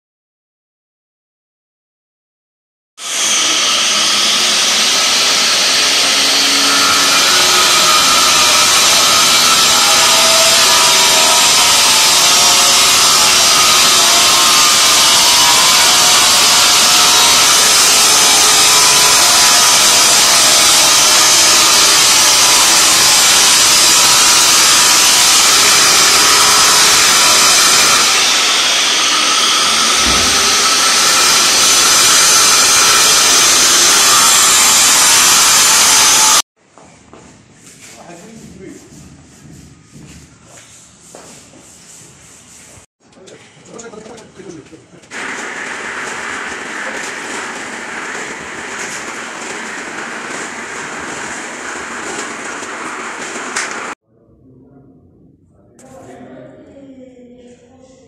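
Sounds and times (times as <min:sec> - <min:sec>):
angle grinder cutting marble: 0:03.0 - 0:36.5, 0:45.1 - 0:54.0.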